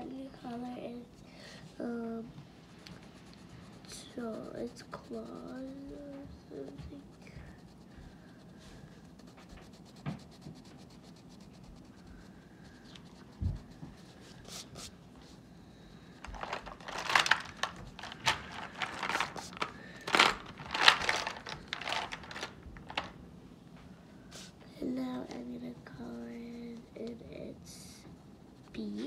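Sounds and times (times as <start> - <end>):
crayon scribbling on paper: 0.0 - 15.4, 17.8 - 19.6, 24.4 - 29.0.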